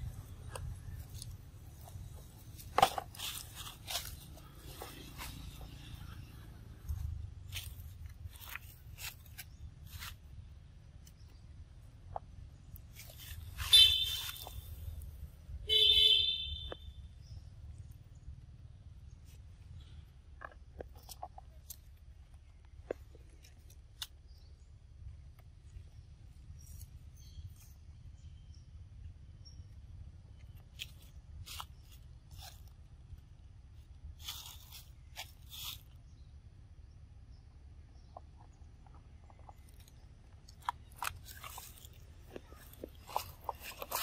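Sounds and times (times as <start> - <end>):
crunching on dry leaves: 0.0 - 11.4, 12.7 - 16.8, 30.4 - 36.1, 39.5 - 44.0.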